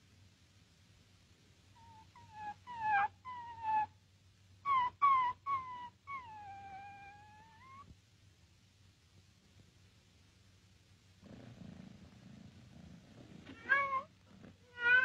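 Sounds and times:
cat meowing: 0:13.5 - 0:15.0.

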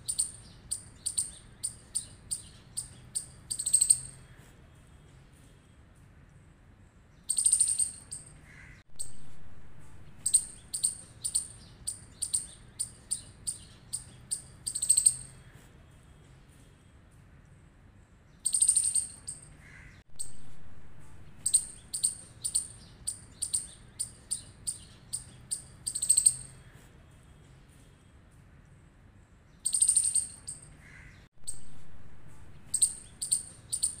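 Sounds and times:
squirrel chirping calls: 0:00.0 - 0:04.4, 0:07.2 - 0:09.2, 0:10.1 - 0:15.5, 0:18.4 - 0:20.4, 0:21.3 - 0:26.7, 0:29.6 - 0:31.8, 0:32.6 - 0:34.0.

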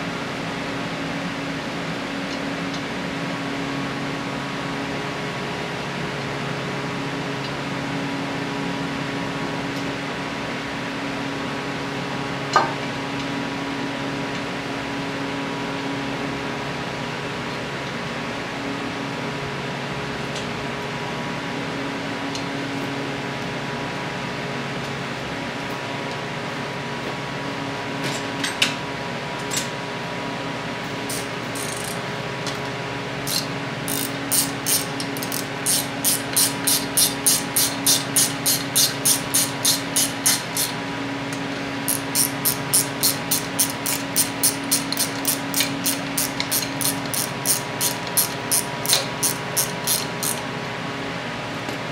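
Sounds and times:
steady fan hum: 0:00.0 - 0:51.9
hand ratchet clicking: 0:31.1 - 0:32.0, 0:33.3 - 0:40.8, 0:41.9 - 0:50.4.

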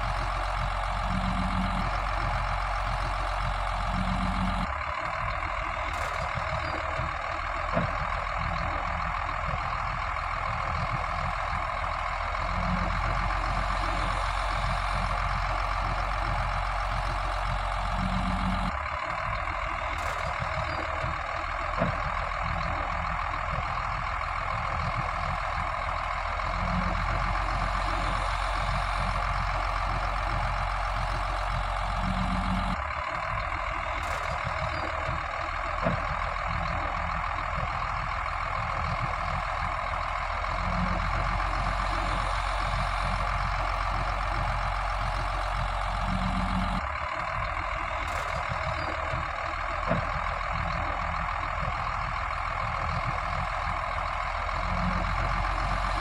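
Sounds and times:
heavy diesel machinery engines: 0:00.0 - 0:56.0.

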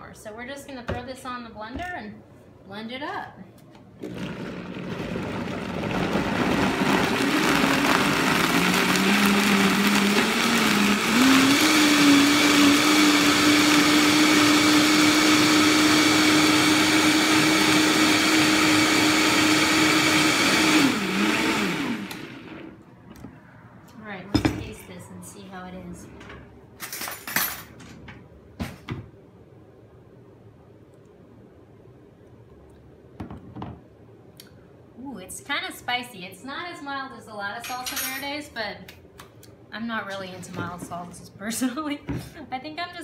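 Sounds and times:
blender motor running: 0:04.0 - 0:22.8.

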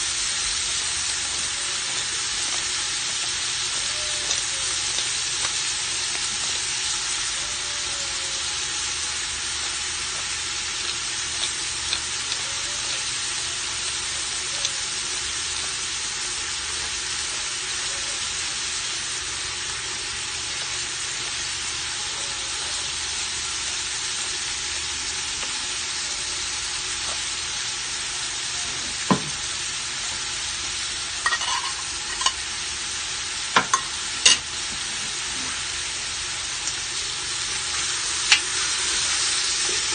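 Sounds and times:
food sizzling in oil: 0:00.0 - 0:39.9.

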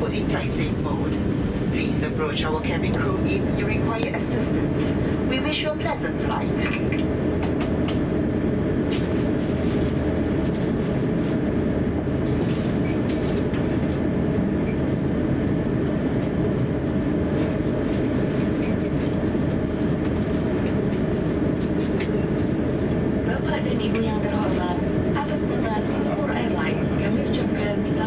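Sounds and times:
aircraft cabin rumble: 0:00.0 - 0:28.0.

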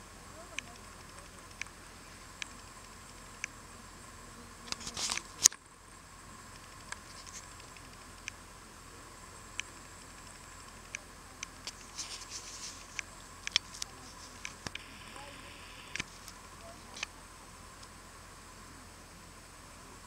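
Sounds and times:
steady low hiss: 0:00.0 - 0:20.0
faint sharp ticks: 0:00.4 - 0:01.8, 0:02.4 - 0:03.6, 0:09.5 - 0:11.9, 0:12.8 - 0:17.2
camera handling rustle: 0:04.7 - 0:05.5, 0:11.6 - 0:14.8.

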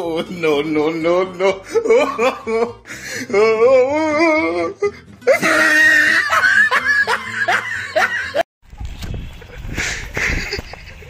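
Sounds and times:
wavering laugh: 0:00.9 - 0:03.2, 0:04.9 - 0:08.4, 0:09.4 - 0:11.0.

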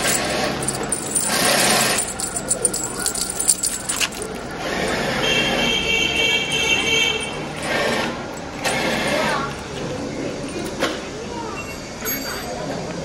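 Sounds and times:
small bell jingling: 0:00.0 - 0:09.8.

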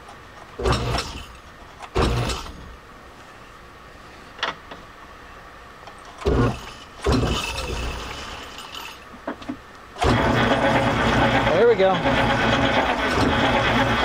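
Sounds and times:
lathe chuck clattering: 0:10.0 - 0:14.0.

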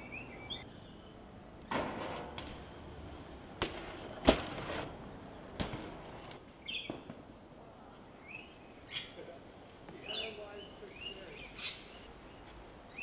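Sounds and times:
bird chirping: 0:00.0 - 0:01.2, 0:06.6 - 0:07.0, 0:08.2 - 0:09.2, 0:10.0 - 0:13.0
bike knocking on pavement: 0:03.6 - 0:04.8, 0:05.6 - 0:06.0.

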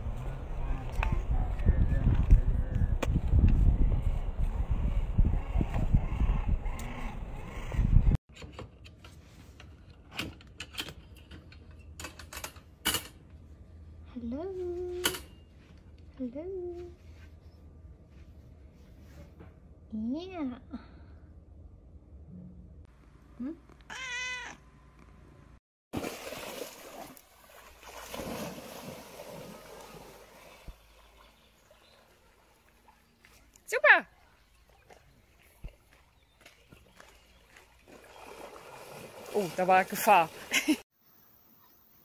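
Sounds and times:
wind rumble on microphone: 0:00.0 - 0:08.2
cat meowing: 0:23.9 - 0:24.6
dog splashing through water: 0:26.0 - 0:33.5, 0:34.6 - 0:40.7.

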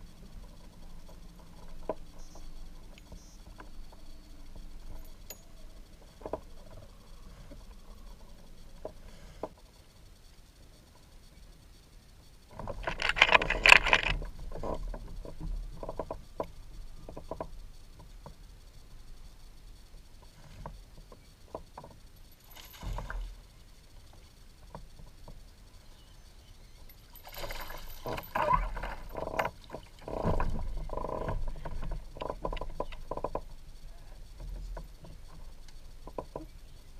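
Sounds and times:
clattering handling bursts: 0:12.7 - 0:14.3
light clicks and knocks: 0:34.2 - 0:36.6.

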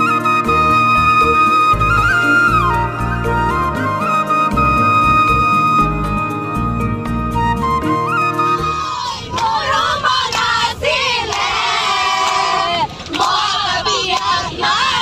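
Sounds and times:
women singing together: 0:08.9 - 0:15.0
clapping along: 0:11.3 - 0:14.5.

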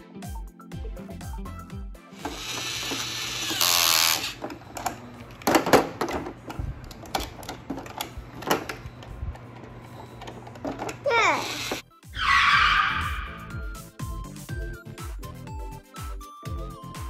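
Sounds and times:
toy screwdriver whirring: 0:02.2 - 0:05.0, 0:10.1 - 0:11.8.

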